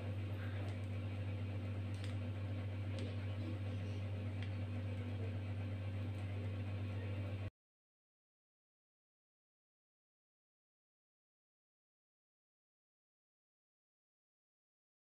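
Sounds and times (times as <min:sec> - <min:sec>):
low hum: 0:00.0 - 0:07.5.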